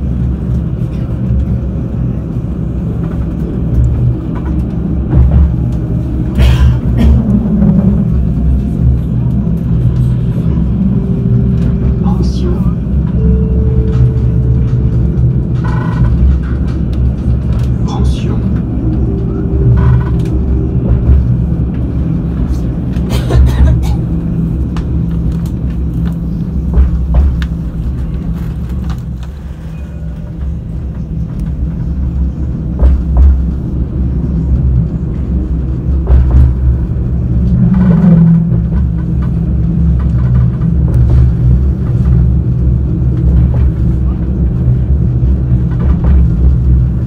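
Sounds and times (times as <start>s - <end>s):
tram wheels rumbling: 0.0s - 47.0s.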